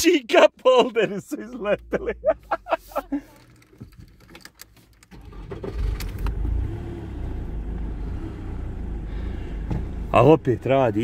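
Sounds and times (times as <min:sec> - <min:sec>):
car engine starting and idling: 0:00.4 - 0:11.0.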